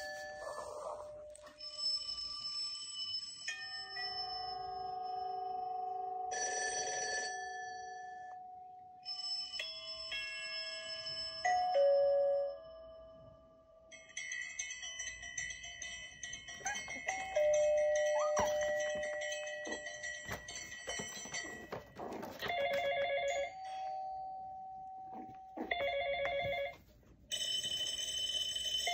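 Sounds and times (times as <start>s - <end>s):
rapid repeating phone ring: 16.6s - 23.6s, 25.2s - 28.9s
electronic ringtone tones: 25.6s - 26.8s.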